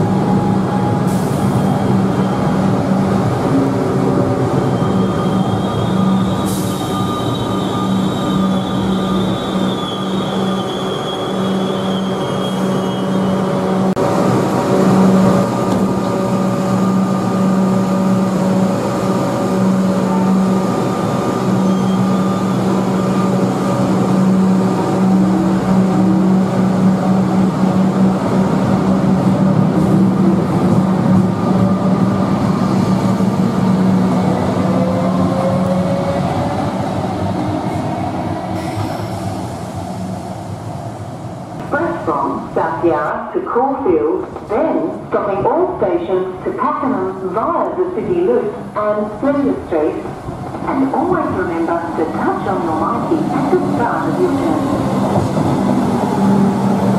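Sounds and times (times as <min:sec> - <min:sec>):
electric train humming: 0:00.0 - 0:56.9
train wheel squeal: 0:00.4 - 0:03.0, 0:04.5 - 0:13.9, 0:21.4 - 0:23.5.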